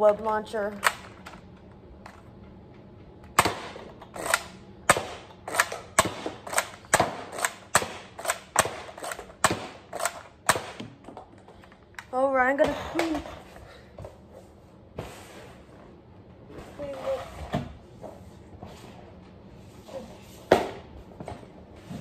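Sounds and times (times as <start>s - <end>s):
toy blaster pumping and firing: 4.1s - 4.5s, 5.4s - 10.6s.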